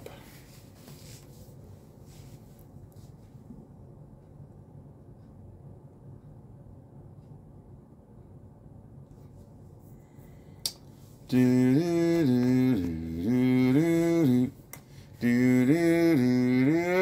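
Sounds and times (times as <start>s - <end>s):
man humming: 11.3s - 17.0s.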